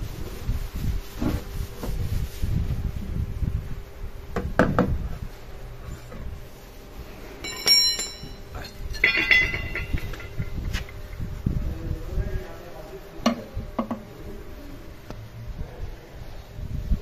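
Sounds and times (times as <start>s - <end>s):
low handling rumble: 1.7s - 17.0s
hard objects clinking: 7.4s - 11.3s.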